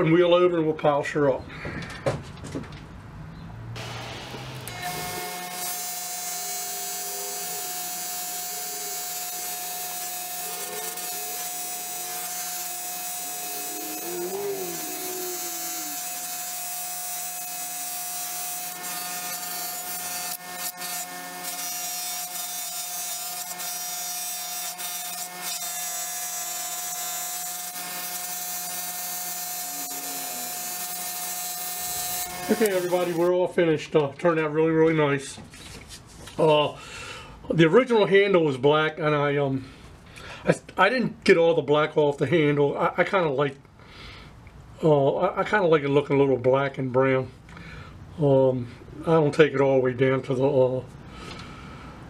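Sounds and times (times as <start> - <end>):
bench buffer motor whine: 3.8 - 33.3.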